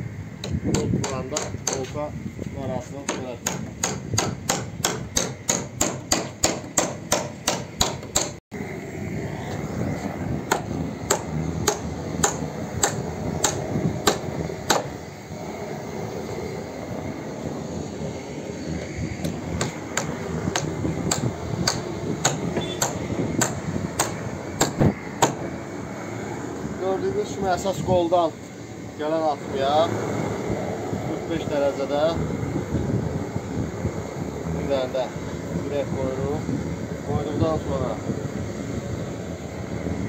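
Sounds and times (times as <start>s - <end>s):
hammer driving nails into wood: 0.4s - 2.0s, 3.1s - 8.4s, 10.5s - 14.9s, 19.2s - 25.4s.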